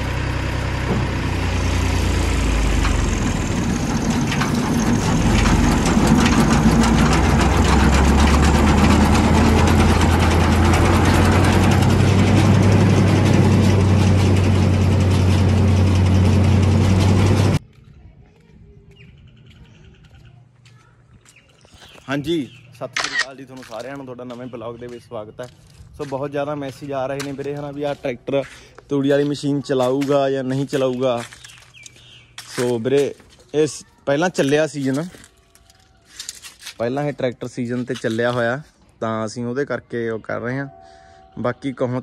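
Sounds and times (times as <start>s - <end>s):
diesel tractor engine clattering: 0.0s - 17.8s, 22.2s - 33.3s.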